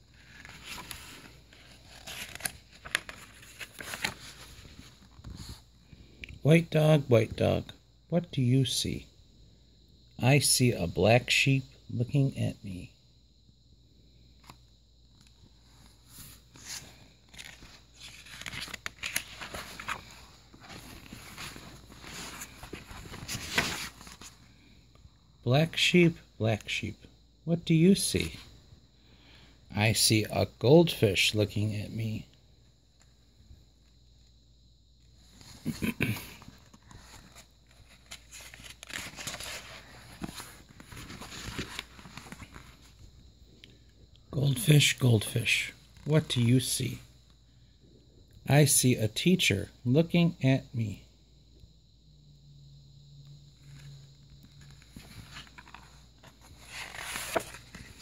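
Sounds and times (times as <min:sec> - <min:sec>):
paper page rustling and crinkling: 0:00.0 - 0:05.6, 0:15.8 - 0:24.5, 0:35.2 - 0:43.1, 0:53.6 - 0:58.0.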